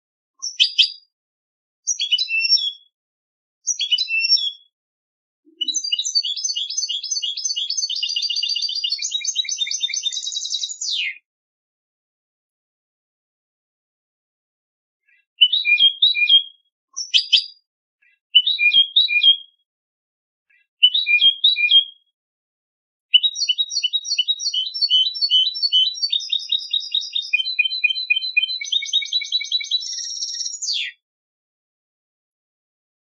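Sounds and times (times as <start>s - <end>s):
goldfinch singing: 1.9s - 2.9s, 3.7s - 4.7s, 5.5s - 11.1s, 23.1s - 31.0s.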